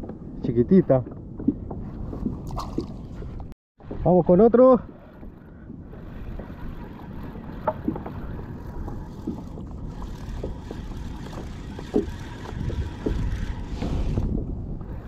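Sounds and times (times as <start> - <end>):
water sloshing against a hull: 0.0 - 15.0
wind on microphone: 0.0 - 15.0
small water plops: 2.4 - 3.2.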